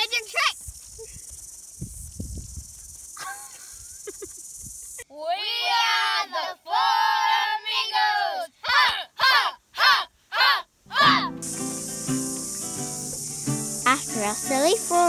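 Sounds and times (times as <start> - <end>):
wind rumble on microphone: 0.6 - 3.0
children chanting in loud shouts: 5.3 - 11.3.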